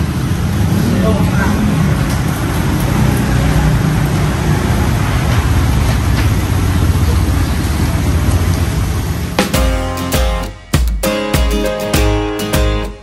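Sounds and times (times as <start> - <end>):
passing traffic rumble: 0.0 - 10.2
acoustic guitar music: 9.4 - 13.0.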